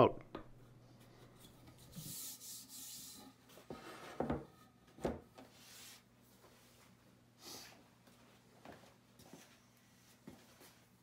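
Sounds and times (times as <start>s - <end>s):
wooden rail scraping on bench: 1.7s - 6.0s.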